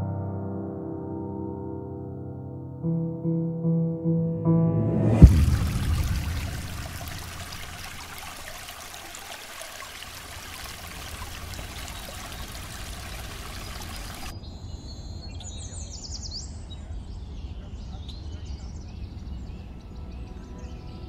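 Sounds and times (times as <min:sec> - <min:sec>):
creek trickling over stones: 0:05.2 - 0:14.3.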